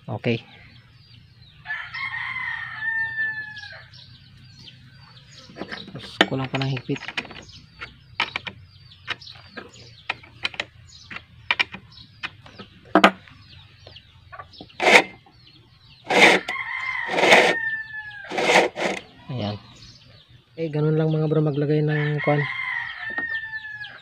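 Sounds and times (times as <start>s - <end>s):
small birds chirping: 0.0s - 24.0s
rooster crowing: 1.6s - 4.0s, 16.2s - 19.0s, 21.8s - 24.0s
loud bursts of noise: 14.8s - 15.2s, 16.1s - 16.5s, 18.3s - 19.0s.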